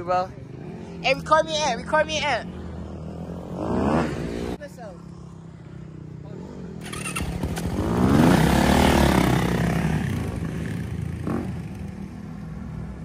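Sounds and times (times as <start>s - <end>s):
dirt bike engine revving: 0.6s - 4.6s, 6.3s - 12.0s.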